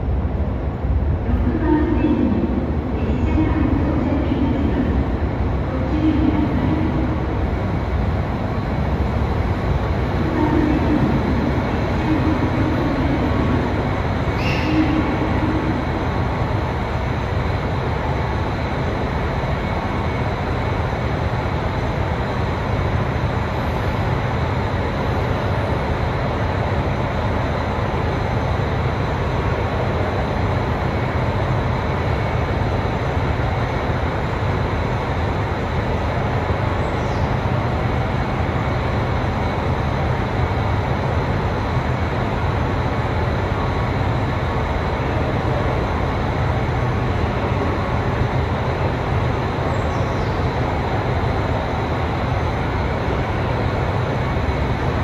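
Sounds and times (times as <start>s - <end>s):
diesel railcar engine drone: 0.0s - 55.0s.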